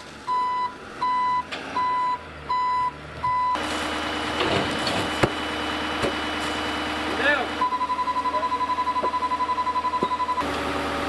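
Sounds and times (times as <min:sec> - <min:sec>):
truck engine running: 0:00.0 - 0:11.0
truck reversing alarm beeping: 0:00.3 - 0:04.4, 0:07.6 - 0:10.6.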